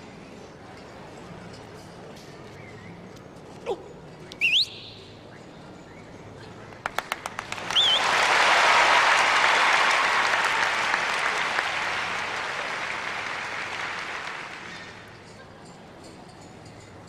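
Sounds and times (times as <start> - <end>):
wavering whistle: 4.4 - 6.1, 7.7 - 8.2
audience applauding: 6.9 - 15.1.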